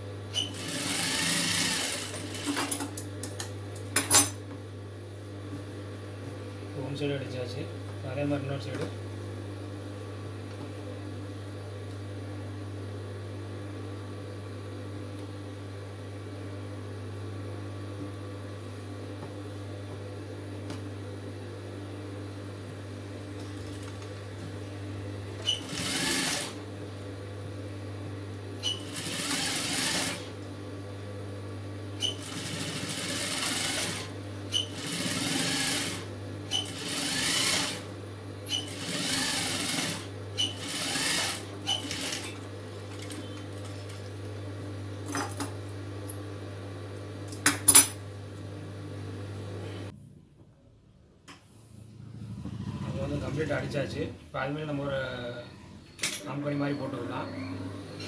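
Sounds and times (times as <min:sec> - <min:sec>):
sewing machine stitching: 0:00.4 - 0:02.8, 0:25.4 - 0:26.6, 0:28.6 - 0:30.3, 0:32.0 - 0:37.9, 0:38.5 - 0:42.4
steady low hum: 0:48.0 - 0:58.0.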